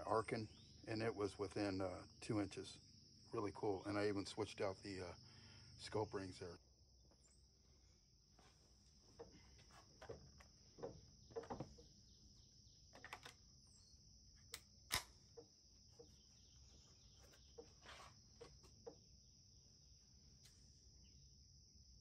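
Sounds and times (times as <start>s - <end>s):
insects droning: 0.0s - 22.0s
rifle handling clicks and knocks: 9.2s - 11.9s, 12.9s - 13.5s, 14.5s - 16.1s.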